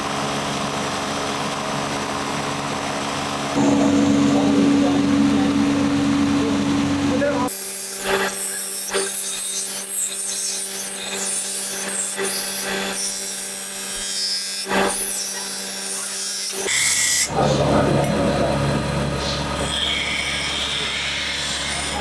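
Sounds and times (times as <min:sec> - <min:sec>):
grinder motor hum: 0:00.0 - 0:22.0
knife scraping on grinding wheel: 0:07.5 - 0:17.3, 0:19.6 - 0:22.0.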